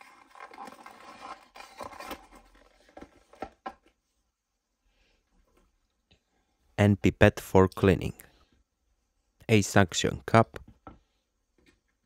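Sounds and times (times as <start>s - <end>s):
cardboard and plastic rubbing: 0.0s - 3.9s.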